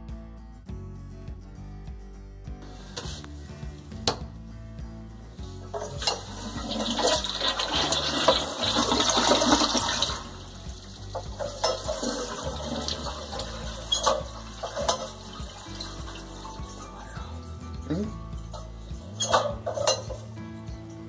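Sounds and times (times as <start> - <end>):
toilet flushing: 5.7 - 17.4.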